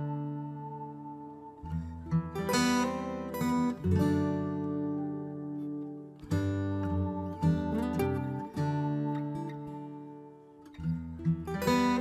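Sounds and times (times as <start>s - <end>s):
plucked acoustic guitar music: 0.0s - 12.0s.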